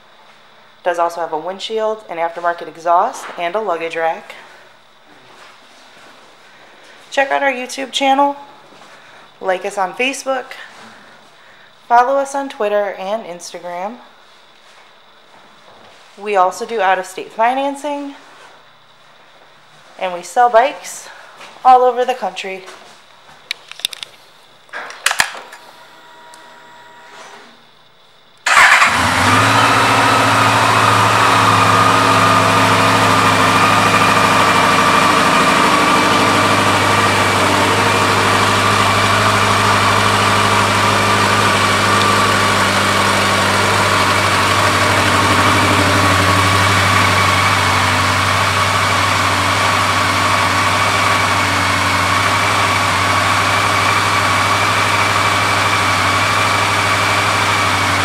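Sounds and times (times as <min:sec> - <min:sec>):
motorcycle engine idling: 0:28.5 - 0:58.0.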